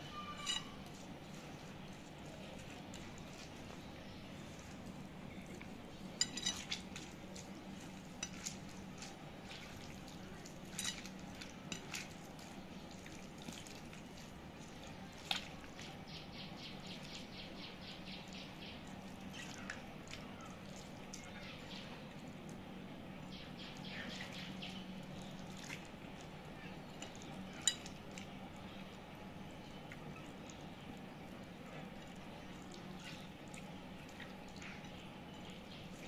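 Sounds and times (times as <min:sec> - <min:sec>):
steady low hum: 0:00.0 - 0:36.0
wet squishing of pumpkin: 0:00.1 - 0:05.8, 0:06.6 - 0:16.1, 0:25.0 - 0:29.0.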